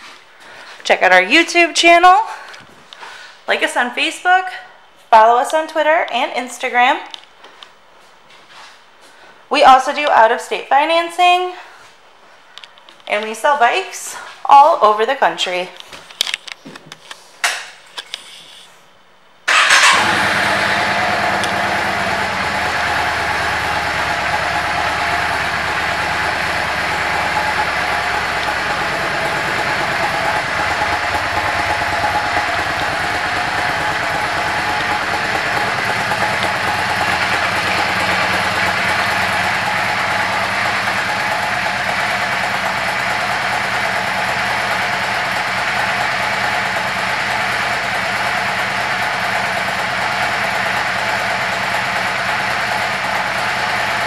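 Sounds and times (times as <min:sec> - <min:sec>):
motorcycle engine idling: 0:19.5 - 0:54.0.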